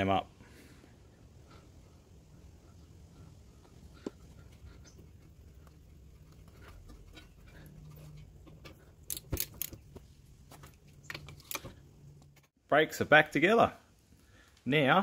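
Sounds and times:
socket and ratchet clicking: 9.0 - 9.8.

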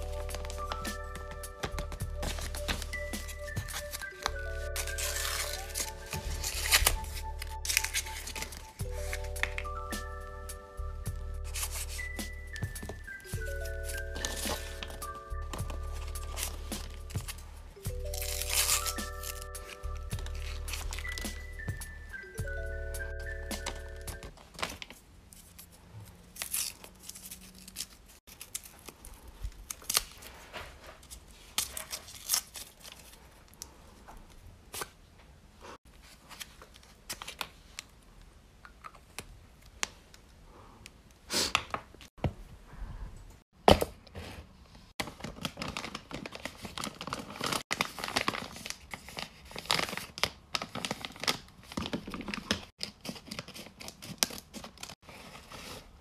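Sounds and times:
paper crinkling and tearing: 0.0 - 9.7, 11.4 - 21.7, 23.6 - 33.6, 45.0 - 56.0.

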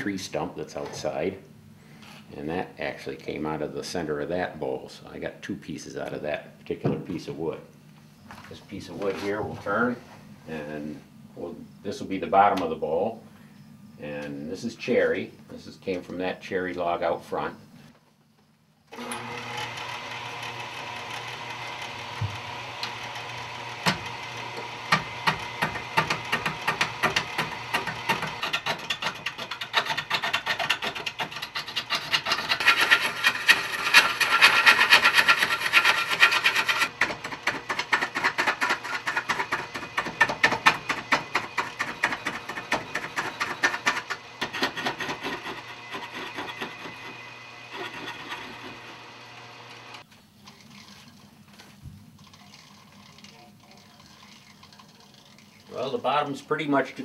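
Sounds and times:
lathe motor hum: 18.9 - 29.8, 31.3 - 50.0
gouge chattering against wood: 24.9 - 47.0.

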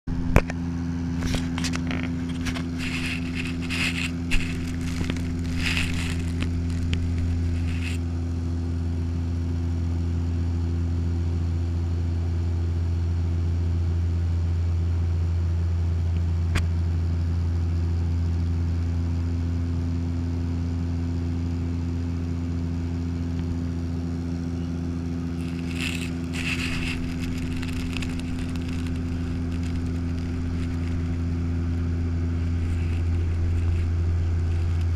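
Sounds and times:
propeller plane cabin drone: 0.1 - 34.9
scraping and clicking: 1.2 - 8.0, 25.3 - 34.9.

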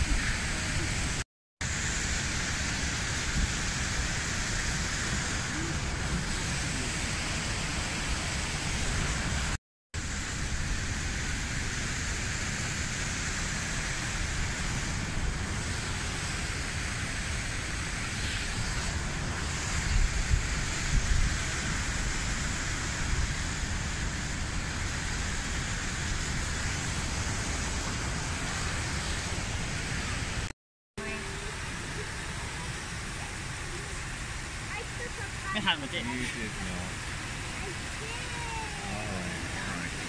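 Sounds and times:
stream rushing over rocks: 0.0 - 40.0.

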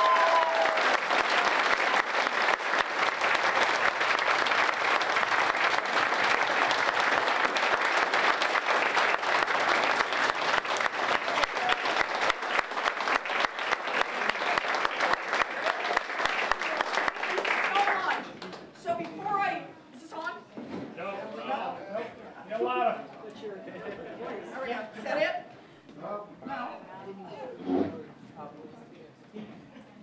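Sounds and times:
people applauding: 0.0 - 19.2.

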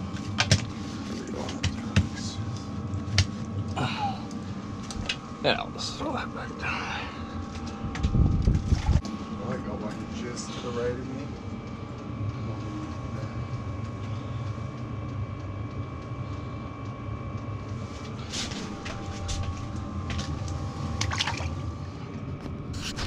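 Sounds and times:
faint whine: 0.0 - 23.0
low mechanical hum: 0.0 - 23.0
fish splashing in water: 21.0 - 21.6.

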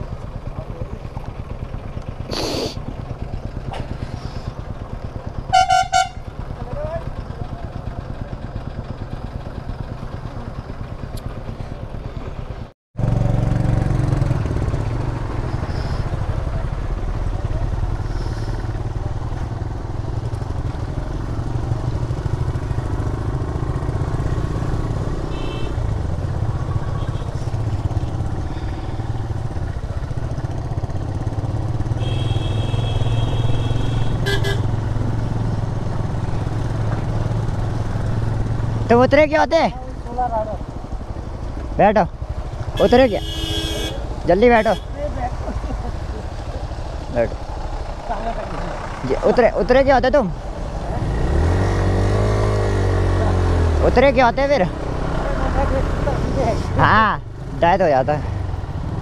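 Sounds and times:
motorcycle engine running: 0.0 - 59.0
vehicle horns: 5.5 - 6.3, 25.2 - 29.0, 31.8 - 34.9, 42.7 - 45.1.

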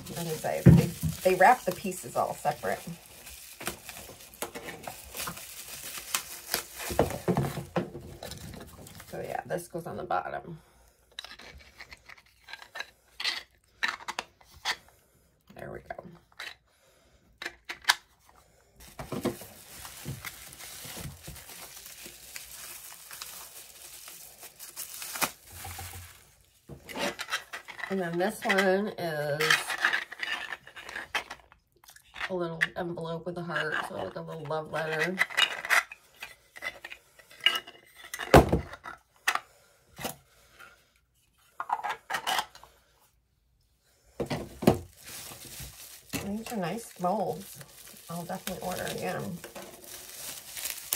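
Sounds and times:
packaging crinkling and tearing: 0.0 - 9.3, 18.8 - 27.9, 44.4 - 50.9.

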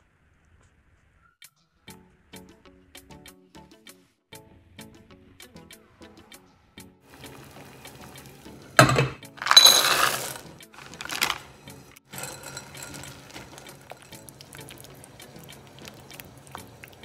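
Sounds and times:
chocolate chips clattering into bowl: 7.2 - 17.0
spatula scraping glass bowl: 9.4 - 17.0.

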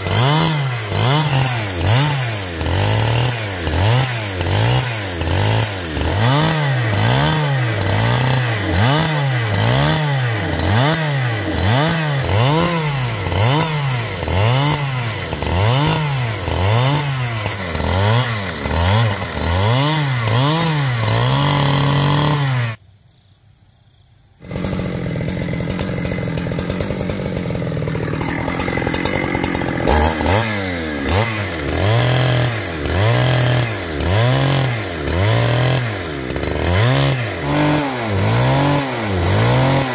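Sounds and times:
chainsaw engine revving: 0.0 - 22.8, 24.4 - 39.9.

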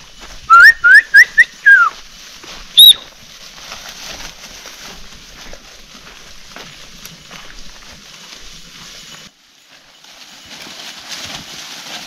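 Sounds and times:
herder whistling: 0.5 - 1.9, 2.8 - 3.1.

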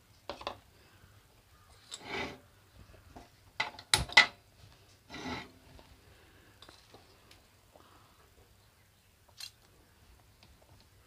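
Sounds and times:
short scraping noises: 1.9 - 2.5, 5.1 - 5.6.

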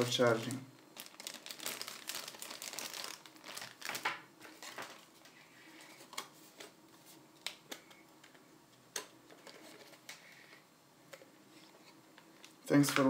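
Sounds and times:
plastic packaging crinkling: 0.0 - 6.3.

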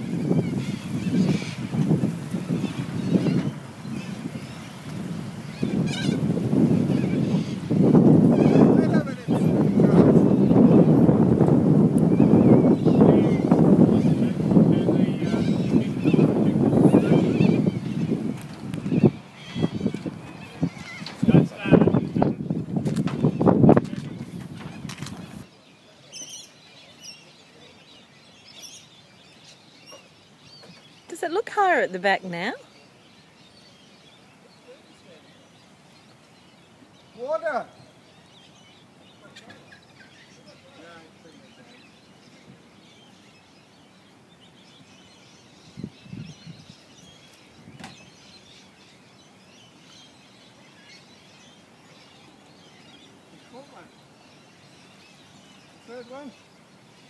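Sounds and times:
small birds chirping: 0.0 - 57.0
faint bird chirps: 23.3 - 31.9.

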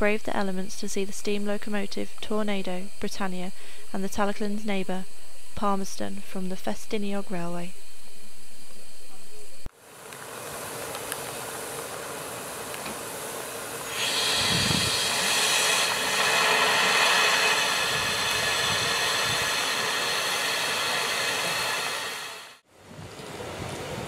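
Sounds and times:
rush of escaping steam: 9.7 - 22.7
steam locomotives hissing: 11.0 - 22.6.

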